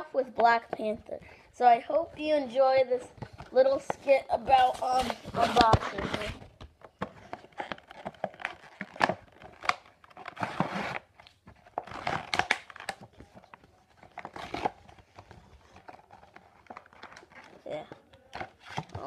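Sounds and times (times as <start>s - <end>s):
packaging crinkling and tearing: 4.5s - 19.0s.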